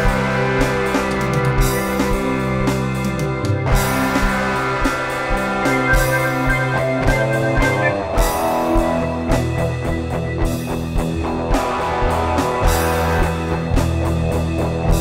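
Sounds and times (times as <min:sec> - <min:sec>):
electric guitar: 0:00.0 - 0:15.0
keyboard: 0:00.0 - 0:15.0
drum kit steady beat: 0:03.8 - 0:09.5.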